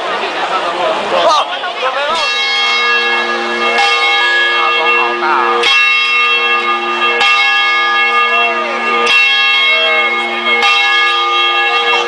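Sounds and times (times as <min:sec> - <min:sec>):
large bell ringing: 0:01.9 - 0:12.0.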